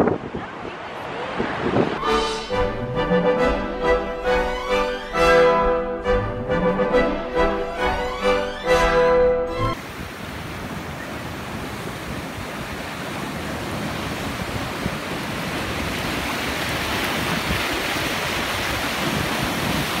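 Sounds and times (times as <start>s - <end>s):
ocean waves breaking against rocks: 9.8s - 20.0s.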